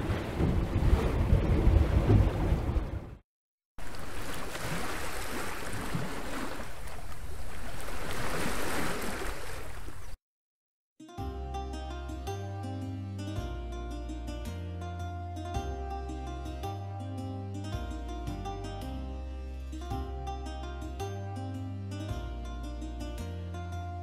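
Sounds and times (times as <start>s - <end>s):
ocean surf: 0.0s - 3.1s, 3.8s - 10.1s
wind: 0.0s - 3.2s, 3.8s - 10.2s.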